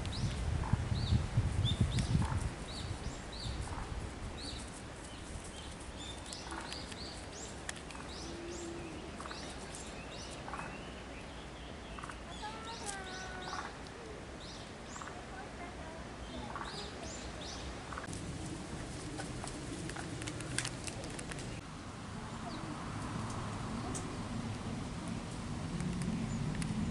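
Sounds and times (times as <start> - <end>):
small birds chirping: 0.1 - 18.1.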